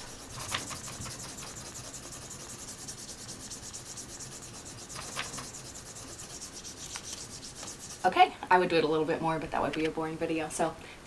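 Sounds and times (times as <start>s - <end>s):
wooden spoon rubbing over paper: 0.0s - 8.2s.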